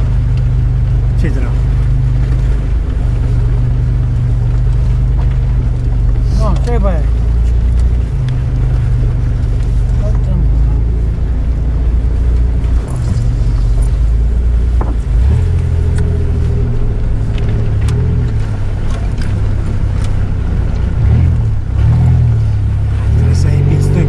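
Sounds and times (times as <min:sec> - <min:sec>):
vehicle engine under load: 0:00.0 - 0:24.0
vehicle knocks and rattles: 0:12.4 - 0:22.5.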